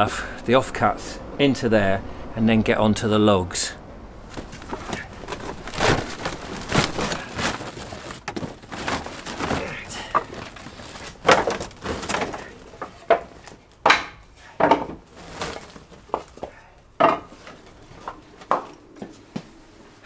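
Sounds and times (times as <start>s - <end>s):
wooden offcuts knocking on a pile: 4.3s - 18.7s.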